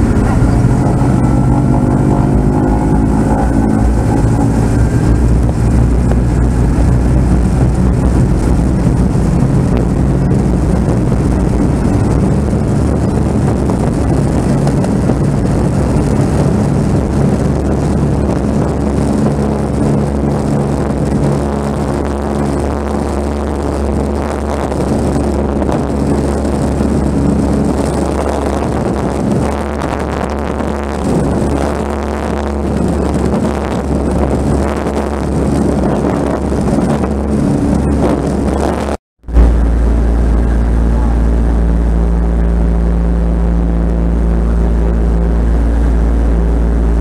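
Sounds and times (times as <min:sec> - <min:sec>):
aircraft engine running: 0:00.0 - 0:47.0.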